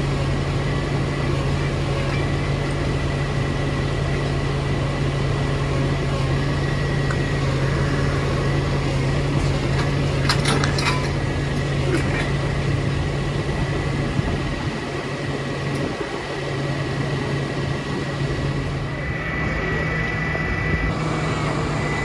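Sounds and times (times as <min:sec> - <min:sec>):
truck engine running: 0:00.0 - 0:22.0
sharp metallic clanks: 0:09.7 - 0:11.2
thin high whine: 0:18.1 - 0:22.0.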